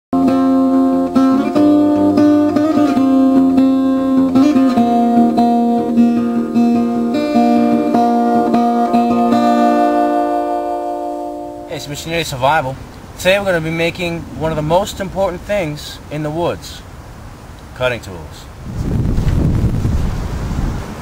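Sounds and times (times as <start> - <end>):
acoustic guitar music: 0.1 - 18.2.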